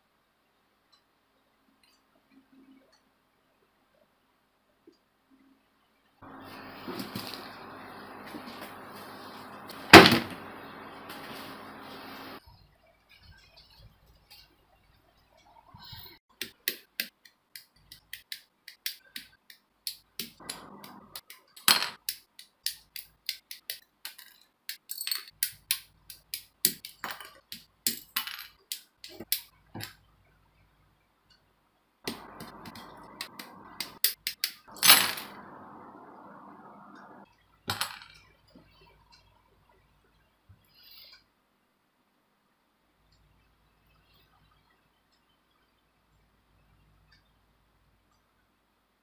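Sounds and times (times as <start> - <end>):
steady scratchy noise: 6.2 - 12.4, 20.4 - 21.3, 32.1 - 34.1, 34.7 - 37.2.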